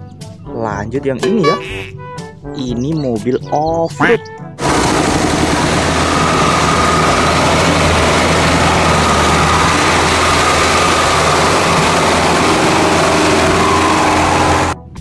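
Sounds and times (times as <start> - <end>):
truck engine under heavy load: 4.6 - 14.8.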